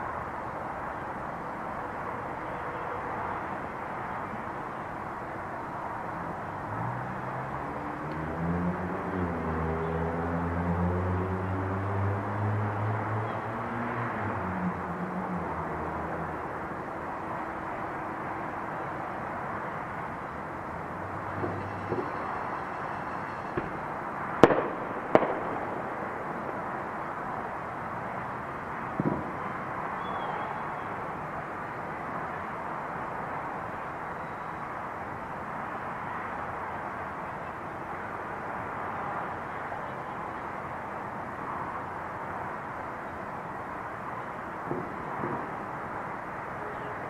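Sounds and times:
firework bangs: 23.5 - 26.9, 28.9 - 29.4, 44.6 - 45.6.

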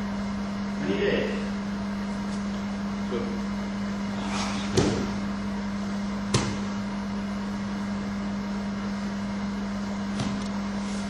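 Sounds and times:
steady low hum: 0.0 - 11.0
body landing on mat thud: 4.4 - 5.3, 6.3 - 6.8, 10.1 - 10.5.

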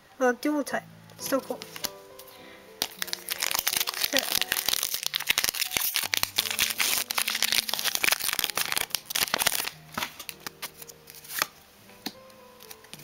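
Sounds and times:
faint background music: 0.0 - 13.0
foil wrapper crinkling and tearing: 1.5 - 11.5
cards clicking in hands: 1.5 - 13.0.

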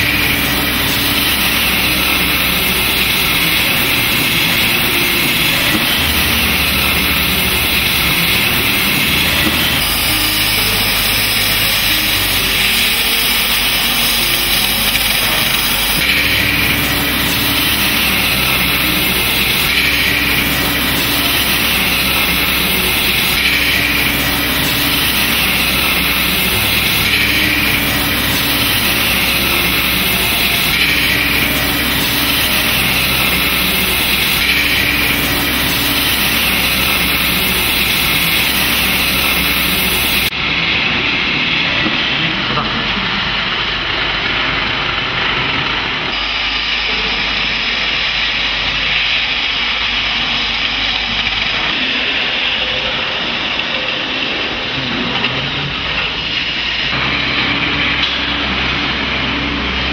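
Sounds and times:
cutting torch jet hissing: 0.0 - 40.3.

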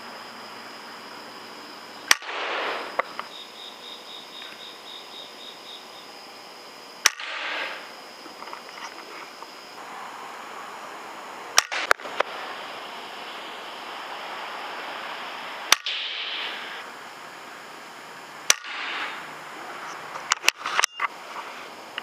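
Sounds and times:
steady hiss: 0.0 - 22.0
air rifle shots: 2.1 - 3.3, 7.0 - 7.9, 11.5 - 12.4, 15.6 - 16.8, 18.5 - 19.3.

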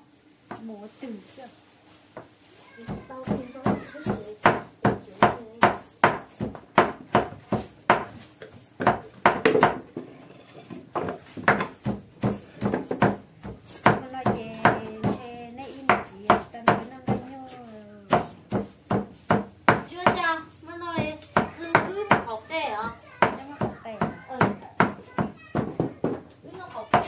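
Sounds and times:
cleaver chopping meat on wood: 2.9 - 8.2, 8.8 - 9.9, 10.9 - 17.3, 18.1 - 20.3, 20.9 - 22.3, 23.2 - 26.2.

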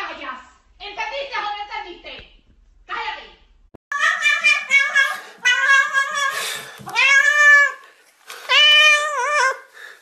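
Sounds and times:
cat meowing loudly: 3.9 - 7.8, 8.5 - 9.6.

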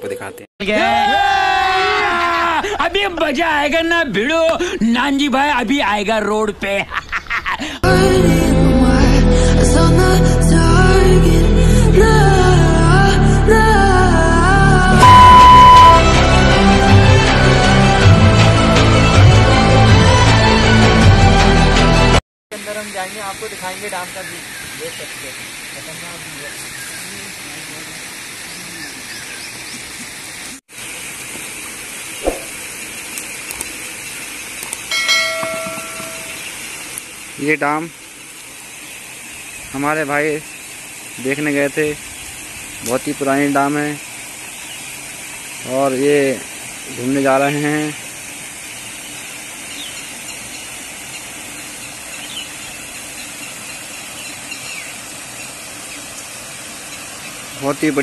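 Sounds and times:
faint high chirps: 15.0 - 16.1
steady rushing hiss: 22.6 - 58.0.

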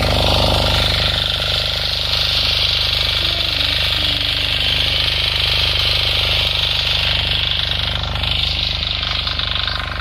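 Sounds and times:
power tiller engine running: 0.0 - 10.0.

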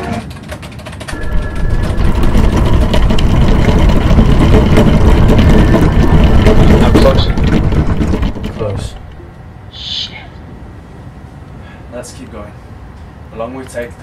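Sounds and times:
crackling glitch noise: 1.1 - 9.3
deep rumbling drone: 1.1 - 10.0.

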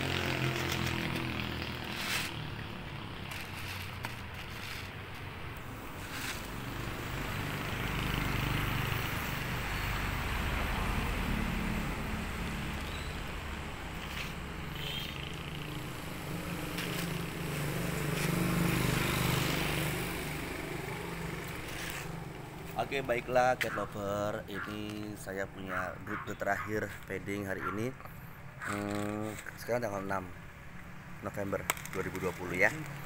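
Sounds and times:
vehicle engines running: 0.0 - 24.0
vehicles passing: 0.0 - 33.0.

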